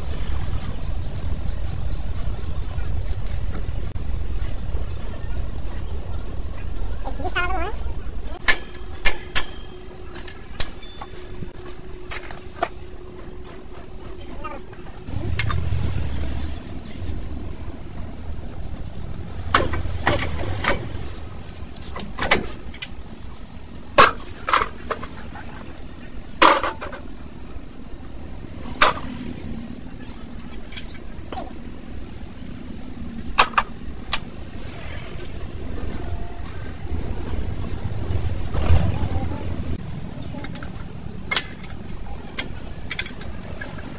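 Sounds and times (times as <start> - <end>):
metal clanks and knocks: 8.4 - 13.8, 19.4 - 23.0
low steady rumble: 9.4 - 43.9.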